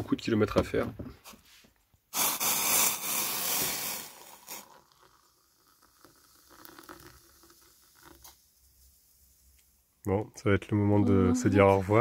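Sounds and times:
hot water pouring into mug: 2.8s - 9.4s.

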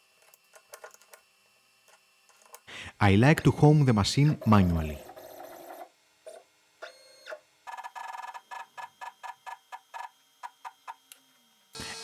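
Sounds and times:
stepper motors buzzing in steps: 3.7s - 12.0s.

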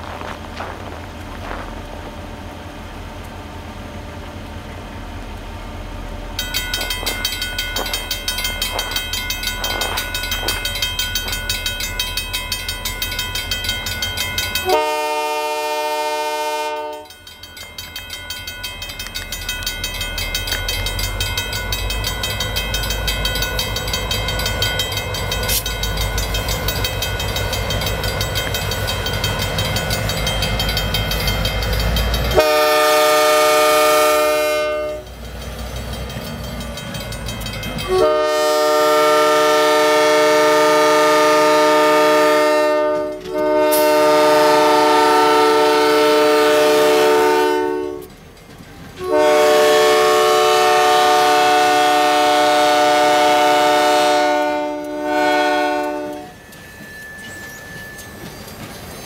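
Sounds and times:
diesel locomotive engines rumbling: 0.0s - 59.0s
train horn blast: 14.6s - 17.2s, 32.3s - 35.1s, 37.8s - 48.1s, 49.0s - 56.4s
high ringing tone: 55.7s - 59.0s.

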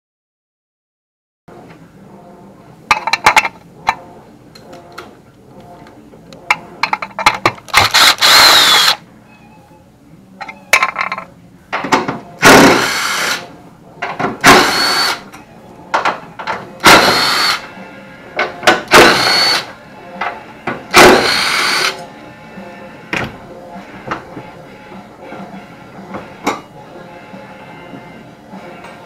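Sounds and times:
cordless drill whirring: 7.7s - 9.0s, 12.8s - 13.4s, 14.4s - 15.2s, 16.8s - 17.6s, 18.9s - 19.7s, 21.0s - 22.0s.

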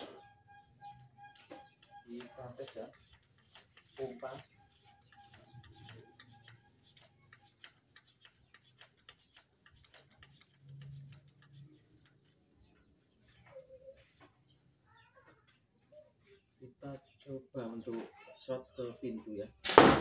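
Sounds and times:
insects chirping: 0.0s - 20.0s
hand pump clicking: 1.6s - 11.6s.

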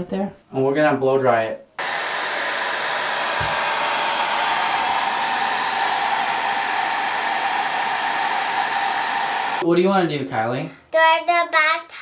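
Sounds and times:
hair dryer running: 1.8s - 9.6s.

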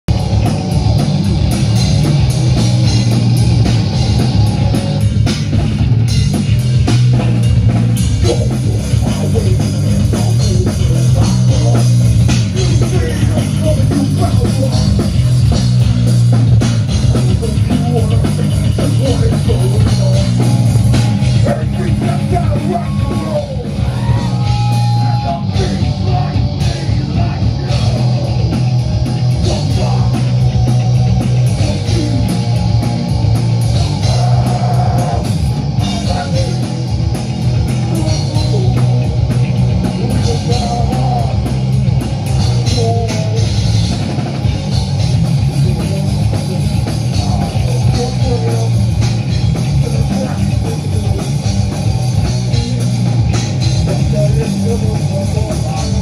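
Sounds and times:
bass guitar: 0.0s - 56.0s
distorted electric guitar: 0.0s - 56.0s
drum kit: 0.0s - 56.0s.

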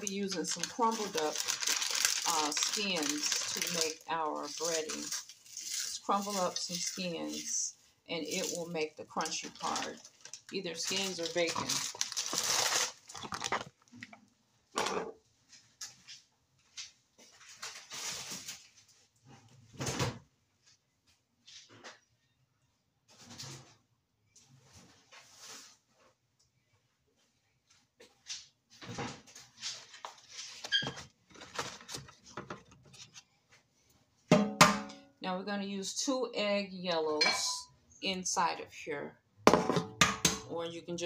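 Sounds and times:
plastic bag crinkling: 0.0s - 7.6s, 8.2s - 14.2s, 17.5s - 18.8s
pork skins crumbled by hand: 0.4s - 5.9s, 11.6s - 14.2s
kitchen handling clatter: 37.2s - 37.7s.

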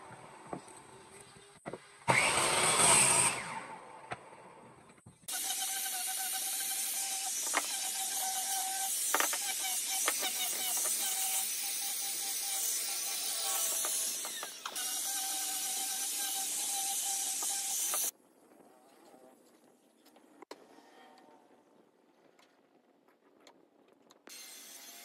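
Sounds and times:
workshop tool motor whirring: 2.1s - 3.7s, 5.3s - 18.1s.

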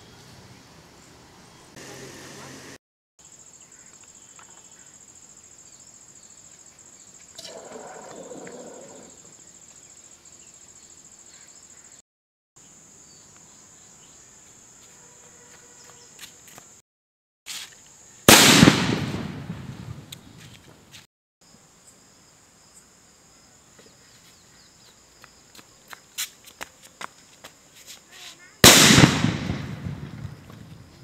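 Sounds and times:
insects chirring: 3.2s - 12.0s
short hiss: 17.5s - 17.9s
firecracker bang: 18.3s - 20.2s, 28.6s - 30.9s.

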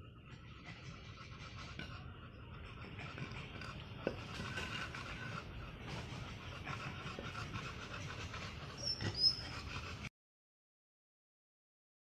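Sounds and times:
dog panting: 0.0s - 10.1s.

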